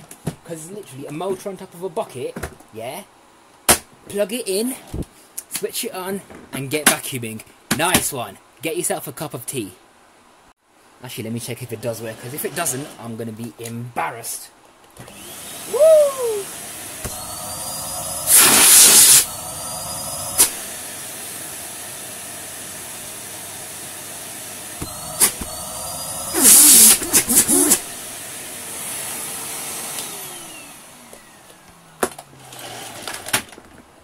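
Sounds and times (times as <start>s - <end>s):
vacuum cleaner motor whine: 15.0s - 33.3s
bursts of rushing air: 18.1s - 20.6s.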